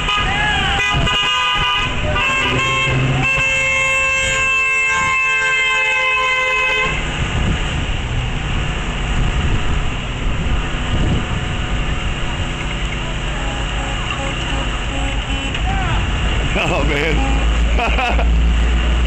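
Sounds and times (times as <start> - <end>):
car horn: 0.0 - 7.2, 13.0 - 17.9
cars driving by: 0.0 - 19.0.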